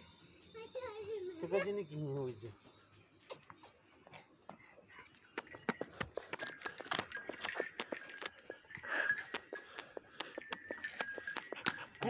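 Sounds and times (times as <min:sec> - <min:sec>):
metal chain clinking and rattling: 0:05.5 - 0:12.0.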